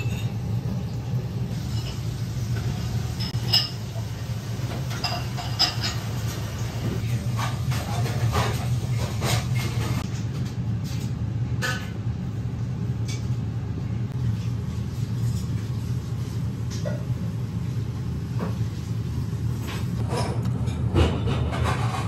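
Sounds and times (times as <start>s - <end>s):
tableware clinking: 0.0s - 0.4s, 1.6s - 3.9s, 4.9s - 6.4s
restaurant room noise: 0.0s - 22.0s.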